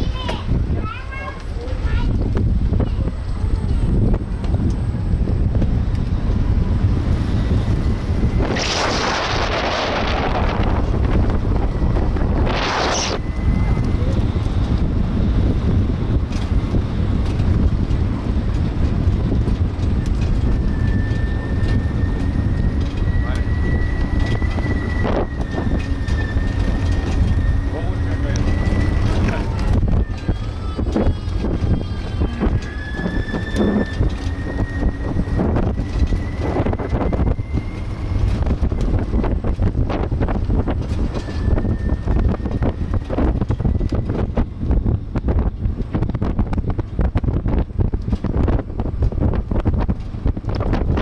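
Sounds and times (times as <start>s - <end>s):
road noise from moving cart: 0.0s - 51.0s
wind buffeting the microphone: 0.0s - 51.0s
thin high whine: 7.3s - 14.4s.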